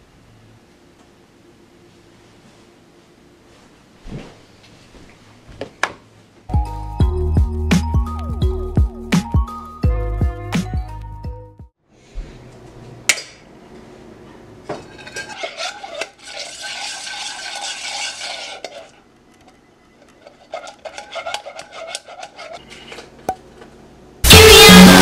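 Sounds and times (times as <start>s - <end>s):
utensil stirring and scraping saucepan: 14.8s - 23.1s.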